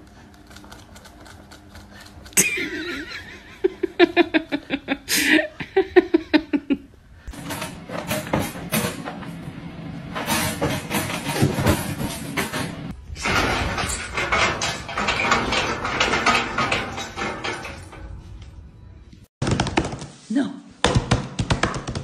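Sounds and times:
person laughing hard: 2.4 - 7.0.

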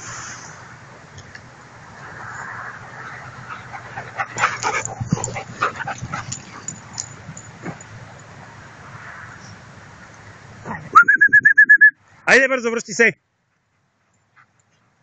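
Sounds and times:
dogs yipping barking and whining: 3.1 - 8.3.

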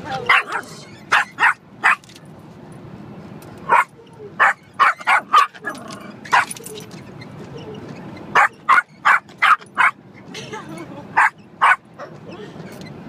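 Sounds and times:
car road noise hum: 0.0 - 13.0
small dog barking: 0.2 - 2.0, 3.7 - 5.7, 8.4 - 10.0, 11.2 - 12.1.

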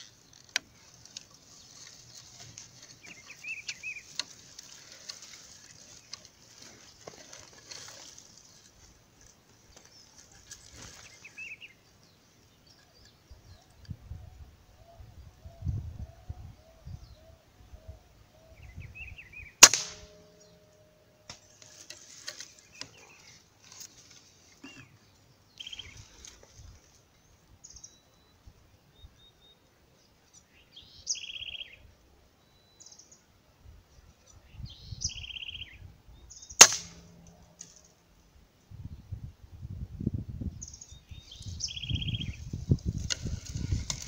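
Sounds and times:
low rustling: 0.0 - 11.7
small birds chirping: 0.0 - 19.6, 20.3 - 33.3, 33.9 - 38.0, 40.4 - 44.0.

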